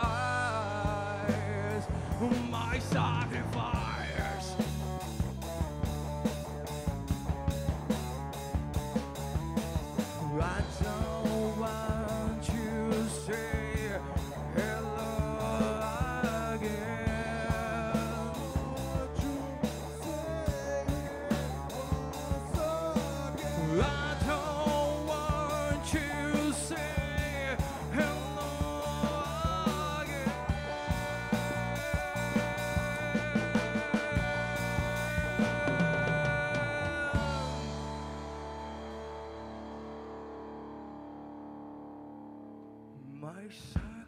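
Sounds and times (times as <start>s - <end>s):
man singing: 0.0s - 5.6s, 10.0s - 38.4s, 43.0s - 44.0s
live rock band playing: 0.0s - 42.8s.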